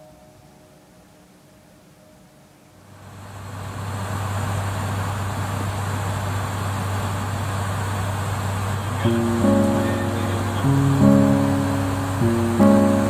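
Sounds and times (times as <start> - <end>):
acoustic guitar notes: 9.0 - 13.0.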